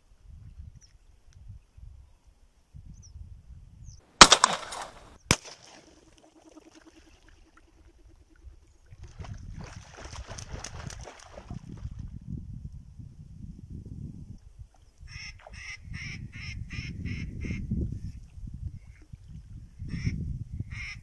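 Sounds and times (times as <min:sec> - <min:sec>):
shotgun shots: 0:04.2 - 0:05.9
water splashing: 0:04.2 - 0:12.0
ducks taking off from water: 0:04.2 - 0:12.1.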